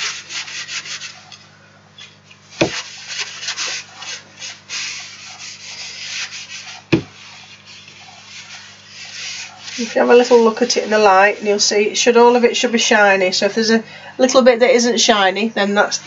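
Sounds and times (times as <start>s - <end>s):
paper towel wiping wood board: 0.0s - 1.4s, 2.4s - 12.4s.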